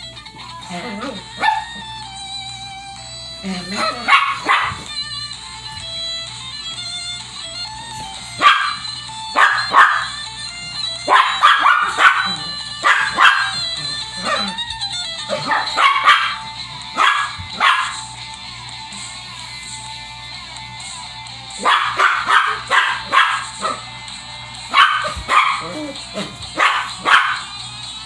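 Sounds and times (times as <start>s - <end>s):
background music: 0.0s - 28.0s
small dog barking: 1.4s - 1.8s, 3.7s - 4.9s, 8.4s - 8.8s, 9.4s - 10.2s, 11.1s - 14.6s, 15.3s - 18.0s, 21.6s - 23.8s, 24.7s - 27.5s.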